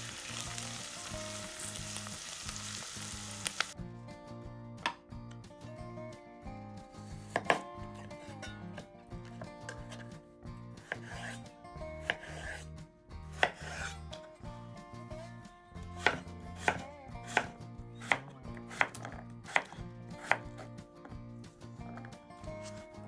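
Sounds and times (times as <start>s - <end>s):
knife cutting on cutting board: 7.2s - 8.5s, 9.3s - 10.2s, 10.8s - 11.4s, 12.0s - 12.6s, 13.3s - 13.9s, 16.0s - 20.7s.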